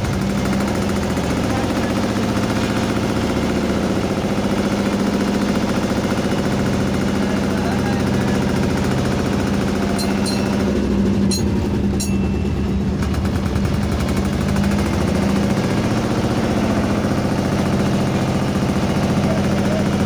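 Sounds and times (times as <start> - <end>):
boat engine knocking hum: 0.0 - 20.0.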